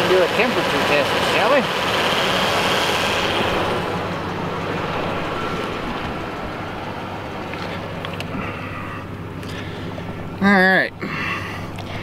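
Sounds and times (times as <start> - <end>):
fan hum and rushing air: 0.0 - 12.0
truck engine idling: 0.0 - 12.0.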